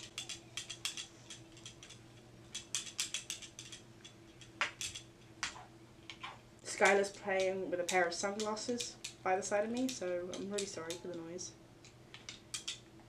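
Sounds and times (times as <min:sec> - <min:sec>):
plastic sunglasses clicking and rattling: 0:00.0 - 0:09.2, 0:11.8 - 0:12.8
faint steady hum: 0:00.0 - 0:13.0.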